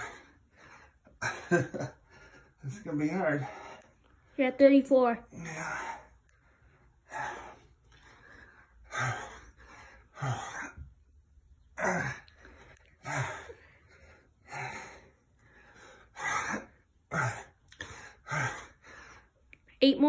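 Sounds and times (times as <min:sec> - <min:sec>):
man gasping exhalations with grunts: 0:11.7 - 0:19.2.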